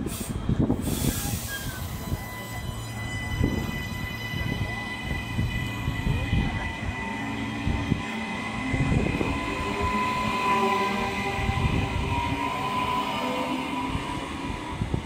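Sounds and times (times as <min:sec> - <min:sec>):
train carriages rumbling past: 0:00.0 - 0:15.0.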